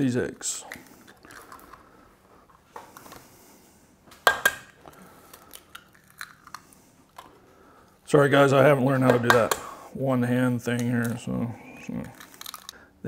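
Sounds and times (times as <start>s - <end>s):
eggshell clicks and crackles: 0.7s - 2.0s, 4.2s - 7.4s, 12.0s - 12.8s.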